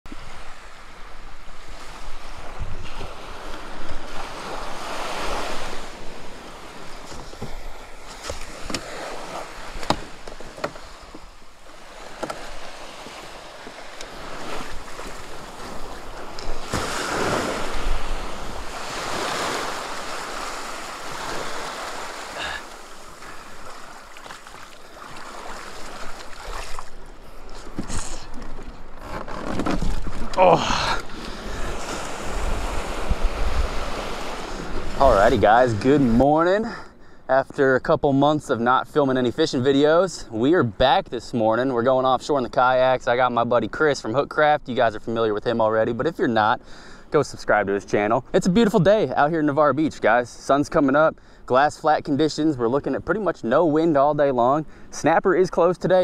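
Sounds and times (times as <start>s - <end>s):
small waves washing in: 0.1s - 29.0s, 29.9s - 36.2s
kayak gear clicking and knocking: 7.0s - 9.0s, 9.7s - 11.3s, 12.0s - 14.2s, 27.5s - 31.3s.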